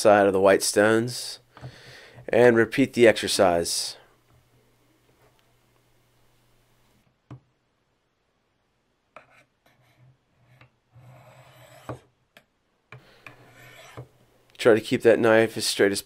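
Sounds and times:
knife blade scraping ceramic stone: 13.3s - 14.1s.

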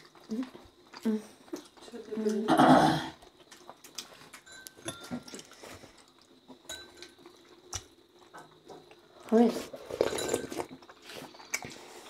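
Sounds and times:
spoon clinking on bowl: 6.7s - 7.1s.

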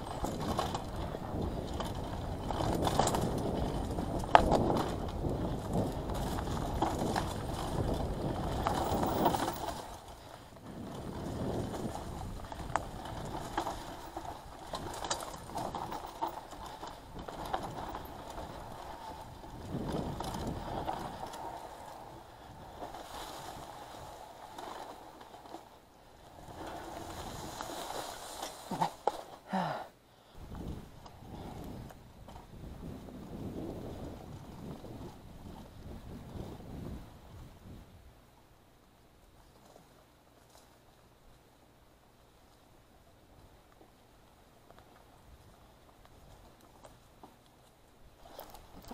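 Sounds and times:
bike rattling over bumps: 0.0s - 29.5s, 30.4s - 37.8s, 43.1s - 48.9s
tyres rushing over dirt: 0.0s - 29.5s.

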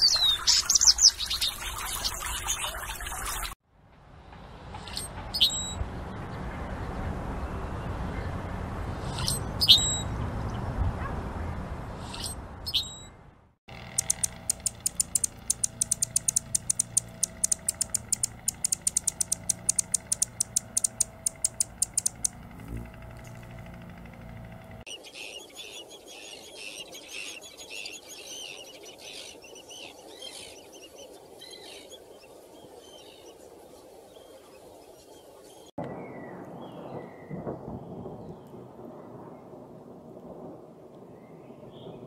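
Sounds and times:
bird chirps and song: 0.0s - 3.5s, 9.0s - 10.6s, 13.7s - 23.7s, 24.9s - 38.4s
outdoor background noise: 0.0s - 42.0s
hummingbird sharp chip calls: 13.7s - 23.5s.

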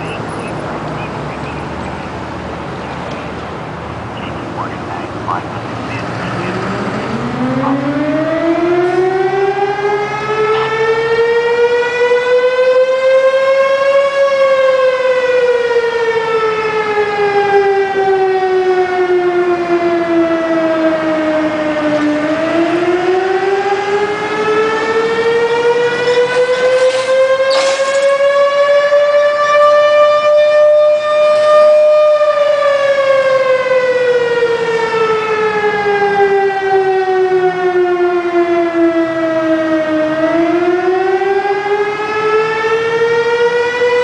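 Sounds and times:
warning siren winding: 25.2s - 32.4s.

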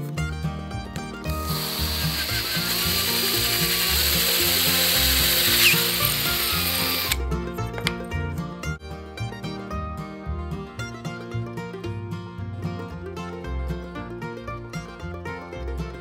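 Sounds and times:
plucked-string background music: 0.0s - 16.0s
power drill boring through metal: 1.4s - 7.2s.

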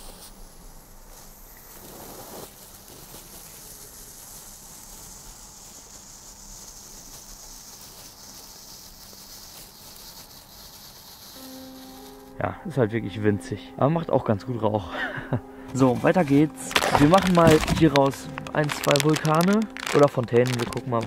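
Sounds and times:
flare burning with steady hiss: 0.0s - 13.3s, 14.0s - 21.0s.

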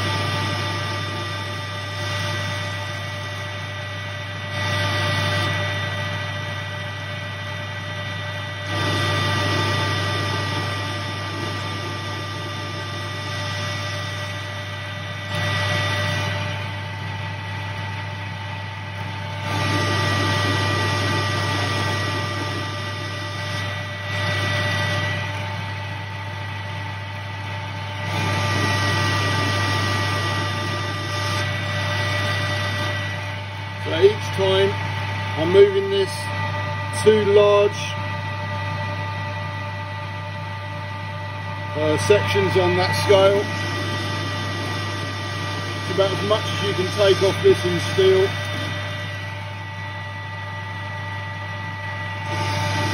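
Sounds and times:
metal lathe hum and whine: 0.0s - 52.9s.

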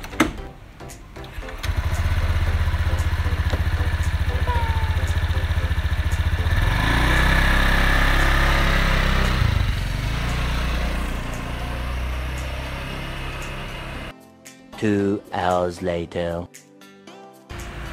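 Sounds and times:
scooter engine idling and revving: 1.3s - 14.1s, 17.5s - 17.9s.

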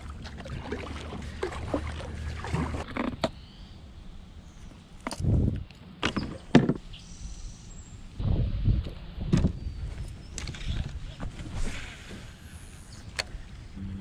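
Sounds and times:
paddle strokes splashing: 0.0s - 3.1s
wind rumble on microphone: 5.1s - 5.7s, 7.9s - 12.3s.

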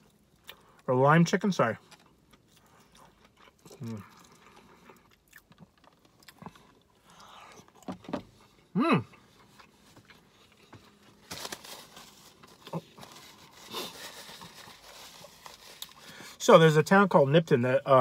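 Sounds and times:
person chewing food: 0.0s - 0.9s, 1.8s - 11.2s.

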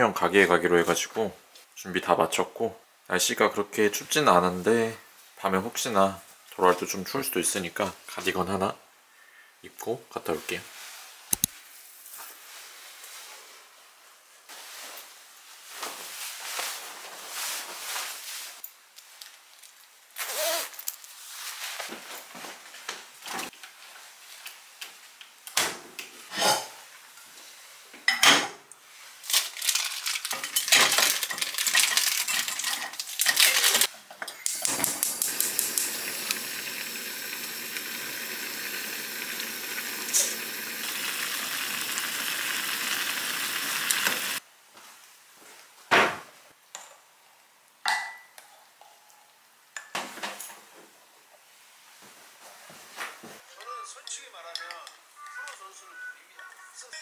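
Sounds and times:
dishes and utensils clinking: 30.2s - 35.9s
steady hiss: 32.5s - 45.2s.

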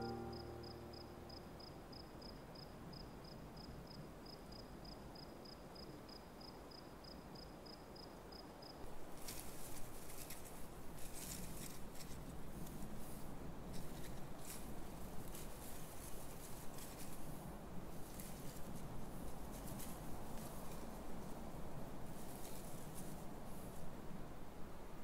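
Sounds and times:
cricket chirping: 0.0s - 9.4s
faint outdoor ambience: 0.0s - 25.0s
crackling rustle: 8.8s - 24.0s.

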